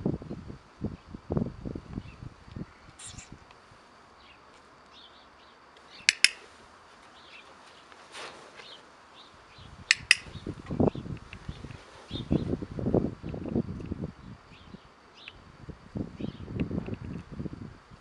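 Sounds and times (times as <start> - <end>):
faint bird chirps: 2.0 - 3.4, 14.2 - 15.4, 16.2 - 16.5
low rustling: 5.8 - 13.2
training clicker double click: 6.0 - 6.4, 9.9 - 10.4.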